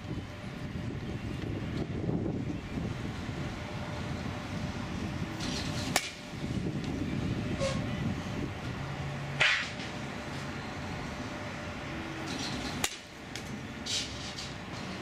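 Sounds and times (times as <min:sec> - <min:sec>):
bat cracking against ball: 0:05.8 - 0:06.2, 0:09.4 - 0:10.0, 0:12.6 - 0:14.6.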